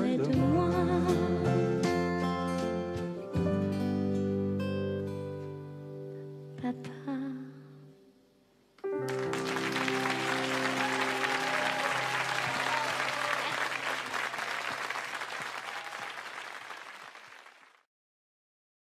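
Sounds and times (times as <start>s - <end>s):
audience applause: 9.0s - 17.8s.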